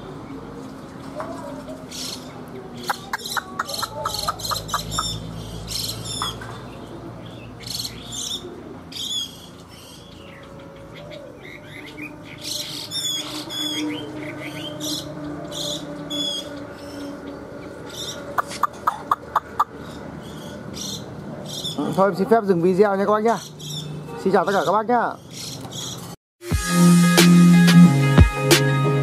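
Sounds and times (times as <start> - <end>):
songbird chirping and whistling: 2.8 - 6.4.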